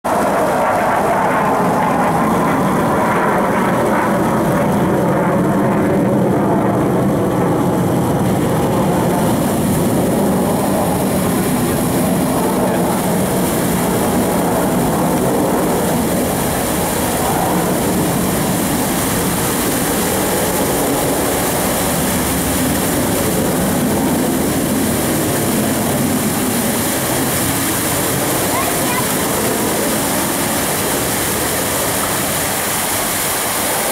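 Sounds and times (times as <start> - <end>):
fighter jet flying overhead: 0.0 - 33.9.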